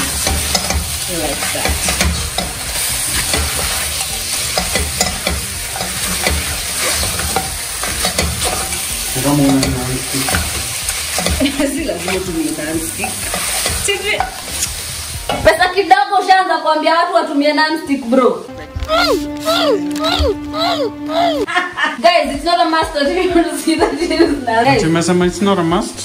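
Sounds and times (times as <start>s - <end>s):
spatula scraping pot: 0.0s - 12.4s, 13.0s - 14.8s
meat sizzling in a pot: 0.0s - 16.5s.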